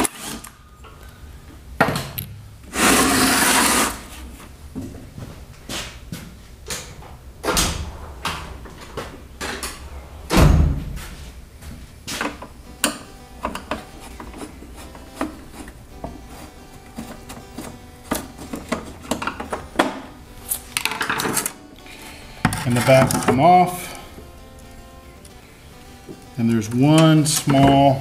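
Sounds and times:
heavy thump: 7.4s - 12.4s
tools clattering on workbench: 20.8s - 21.6s.

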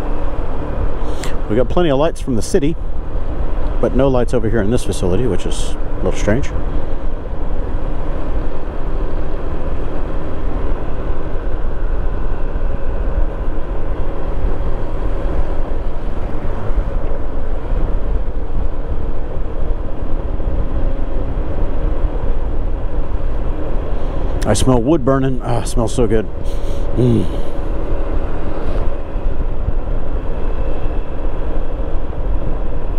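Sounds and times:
wind rumble on microphone: 0.0s - 32.9s.

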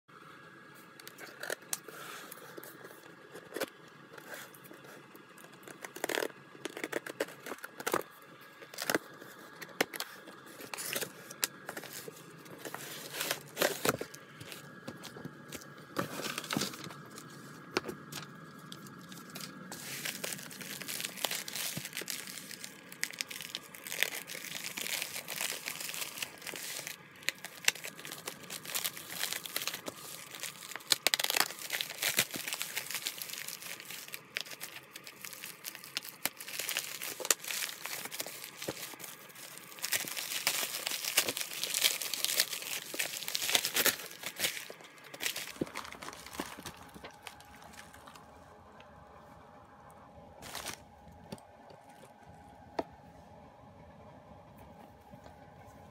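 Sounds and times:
plastic mailer crinkling: 1.1s - 48.4s, 50.4s - 52.3s
plastic mailer tearing: 5.3s - 15.1s, 15.9s - 48.2s, 50.4s - 50.8s.

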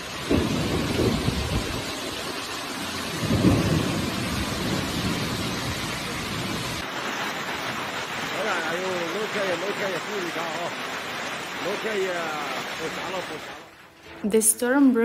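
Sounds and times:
hail and rain hissing: 0.0s - 14.2s
wind gusts buffeting microphone: 0.1s - 2.2s.

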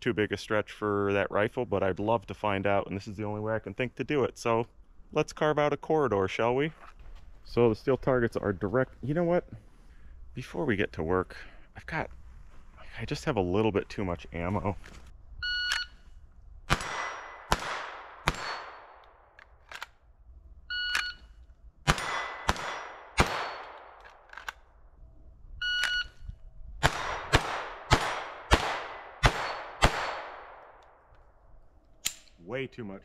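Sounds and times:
gunshots with echo: 16.7s - 19.0s, 21.9s - 24.0s, 26.8s - 30.6s
shot timer beep: 25.6s - 26.2s.

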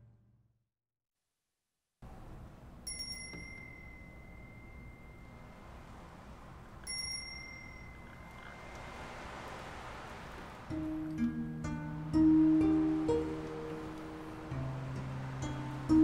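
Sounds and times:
small bell ringing: 2.8s - 5.6s, 6.8s - 8.6s.

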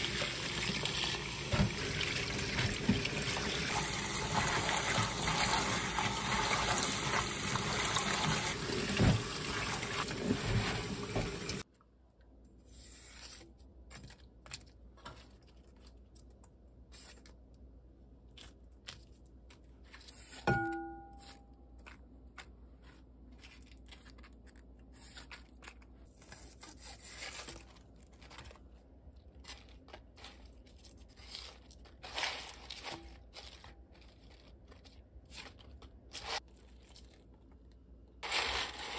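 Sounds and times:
tap water running: 0.0s - 11.6s
glass clink: 20.5s - 21.4s
crisp crunching of leaves: 29.4s - 37.3s, 38.2s - 38.9s.

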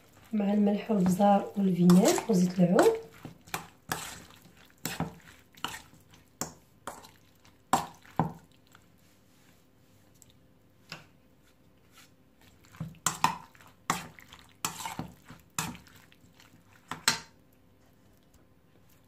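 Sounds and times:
metal spoon scraping steel bowl: 1.8s - 3.0s.

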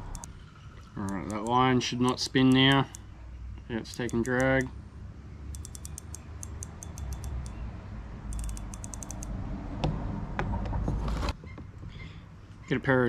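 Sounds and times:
fishing reel drag clicking: 5.6s - 7.6s.

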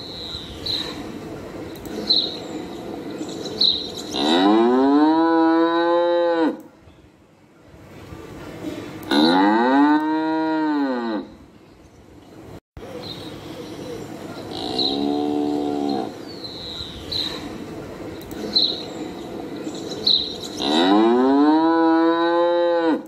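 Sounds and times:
cattle mooing: 4.1s - 6.6s, 9.1s - 11.3s, 14.5s - 16.2s, 20.6s - 23.0s.

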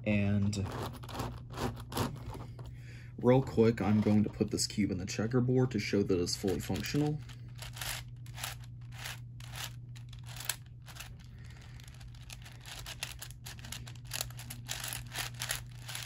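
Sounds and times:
low hum: 0.0s - 16.0s
puzzle cube clicking and scraping: 6.4s - 16.0s.

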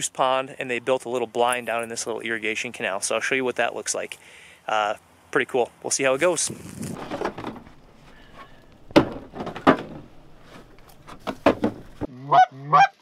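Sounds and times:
wooden knocks and clatters: 7.0s - 12.1s.

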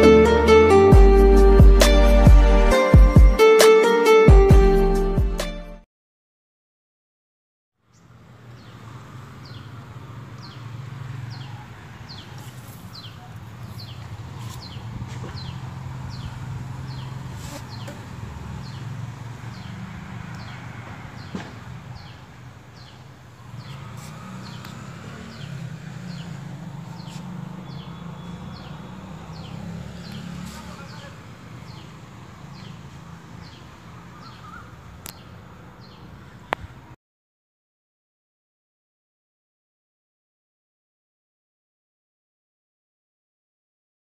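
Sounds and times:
bird chirping: 7.9s - 36.7s.

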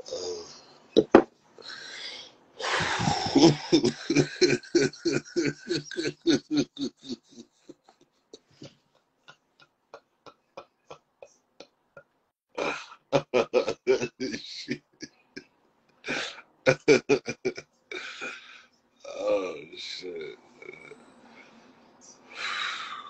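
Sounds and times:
man laughing hard: 2.6s - 7.8s, 12.6s - 15.0s, 16.1s - 18.4s.

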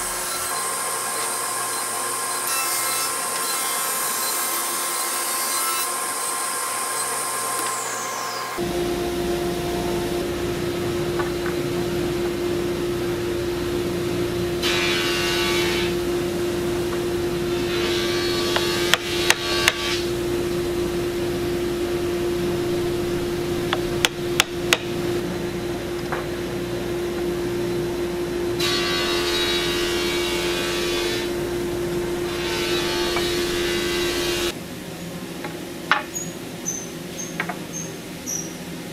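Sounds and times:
steady machine hum: 8.1s - 36.6s.

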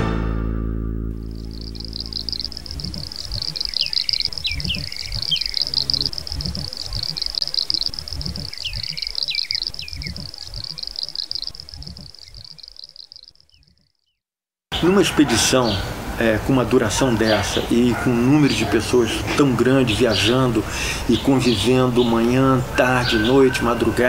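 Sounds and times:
low irregular rumbling: 0.9s - 10.7s
steady high buzzing: 1.1s - 13.5s
birds chirping: 1.2s - 24.0s.

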